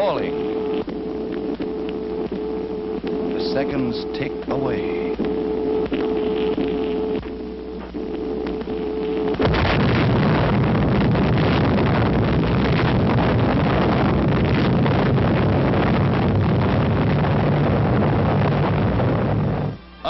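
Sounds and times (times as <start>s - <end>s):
explosion rumbling blast: 9.4s - 19.6s.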